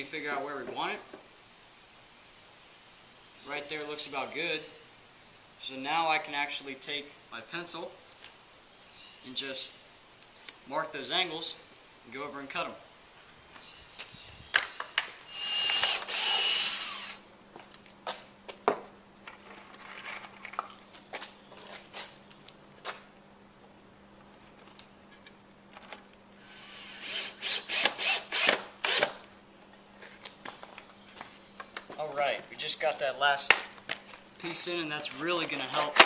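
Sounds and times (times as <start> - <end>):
cordless drill driving screws: 15.3 - 17.2, 26.4 - 29.2
loud power tool running: 15.3 - 17.2, 26.4 - 29.1.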